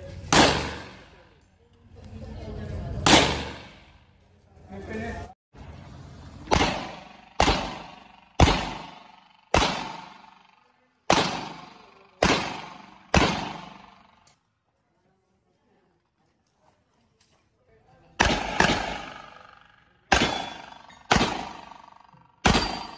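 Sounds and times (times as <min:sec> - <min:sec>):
pistol shots echoing: 0:00.2 - 0:01.3, 0:03.0 - 0:04.0, 0:06.5 - 0:14.2, 0:18.2 - 0:22.9.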